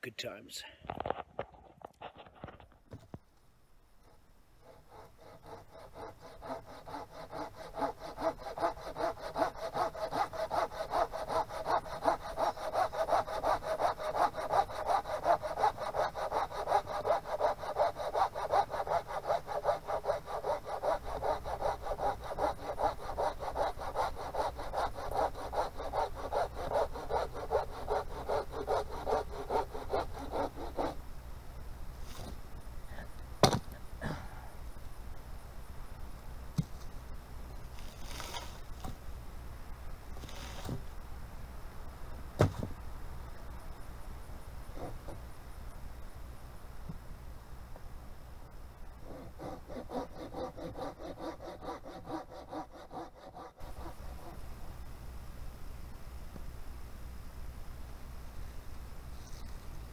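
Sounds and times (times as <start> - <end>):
hand saw cutting wood: 4.6 - 31.0, 49.0 - 54.4.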